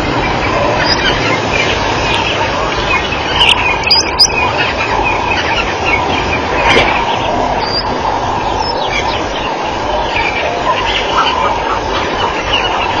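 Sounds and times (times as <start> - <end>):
high chirping calls: 0.0 - 13.0.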